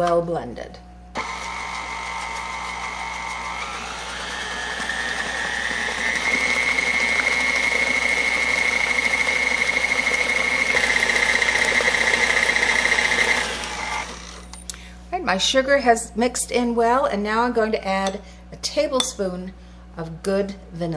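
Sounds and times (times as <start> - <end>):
beater mixing thick batter: 1.2 - 14.5
stand mixer motor whine: 1.2 - 14.6.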